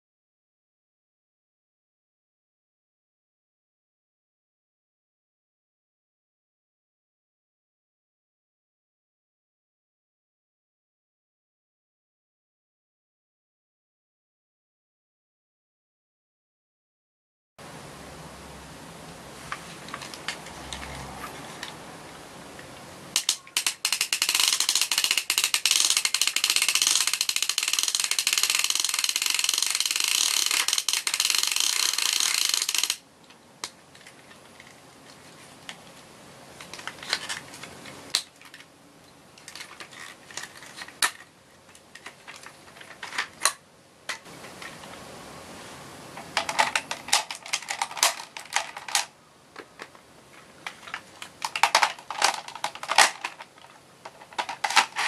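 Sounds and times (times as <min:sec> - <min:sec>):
plastic parts clicking and knocking: 0:22.6 - 0:34.8, 0:36.6 - 0:38.7, 0:39.4 - 0:44.8, 0:46.2 - 0:55.0
toy drill plastic rattle: 0:23.2 - 0:33.0, 0:36.7 - 0:38.6, 0:39.4 - 0:43.6, 0:46.4 - 0:49.1, 0:50.6 - 0:55.0.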